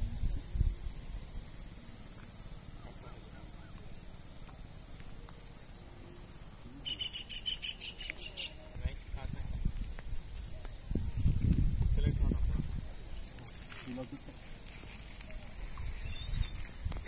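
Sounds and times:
insects droning: 0.0s - 17.0s
faint bird calls: 2.2s - 8.7s.

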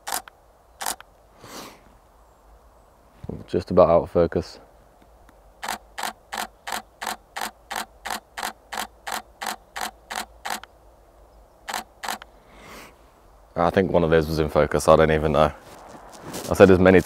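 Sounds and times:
camera shutter firing: 0.0s - 1.0s, 5.6s - 10.7s, 11.7s - 12.2s.

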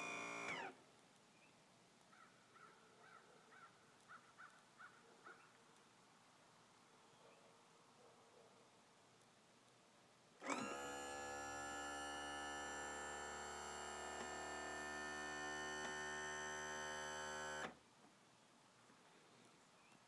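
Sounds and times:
electric motor and pump humming: 0.0s - 0.8s, 10.4s - 17.8s.

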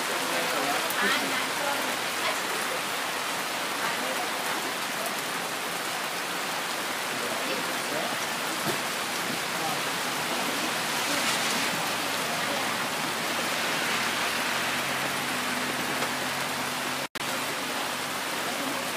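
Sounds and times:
steady rain falling: 0.0s - 18.9s.

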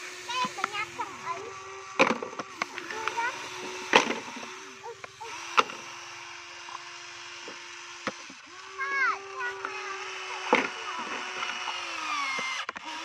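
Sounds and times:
steady hum: 0.0s - 12.7s
plastic toys knocking on wood: 2.0s - 3.2s.

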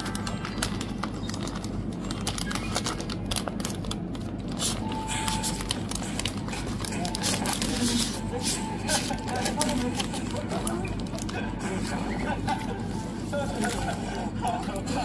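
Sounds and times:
packaging crinkling: 0.0s - 11.4s
steady low hum: 0.0s - 15.0s.

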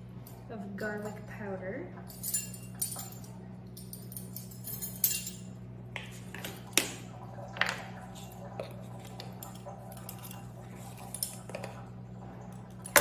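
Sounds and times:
low steady hum: 0.0s - 13.0s
metal measuring spoons jangling: 2.1s - 5.5s.

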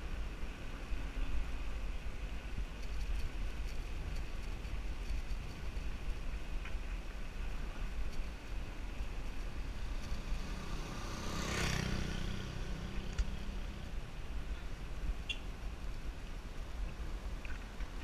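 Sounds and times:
wind rumbling on microphone: 0.0s - 18.0s
motor scooter passing: 9.7s - 14.0s.

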